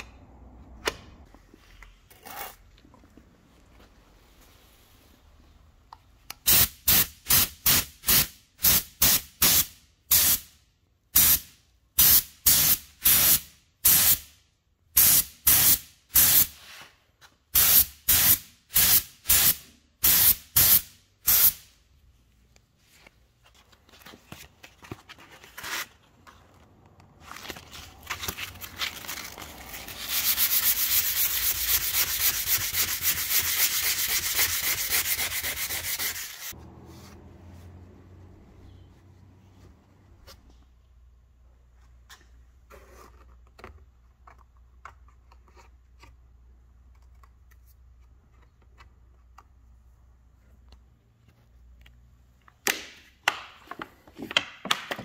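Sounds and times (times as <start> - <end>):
hand sanding on a panel: 30.1 - 36.5.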